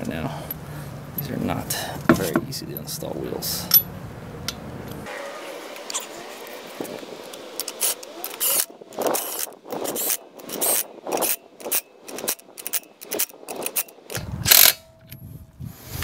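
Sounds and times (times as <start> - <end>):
cordless drill spinning lug nuts: 5.7 - 14.8.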